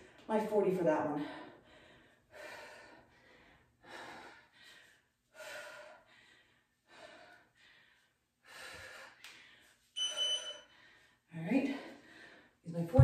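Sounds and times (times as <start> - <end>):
woman breathing heavily: 0.0 - 0.3, 1.1 - 13.0.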